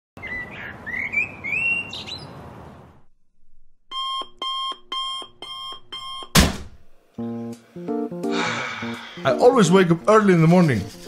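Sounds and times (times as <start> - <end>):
birds chirping: 0.2 - 3.0
digital alarm clock beeping: 3.9 - 6.3.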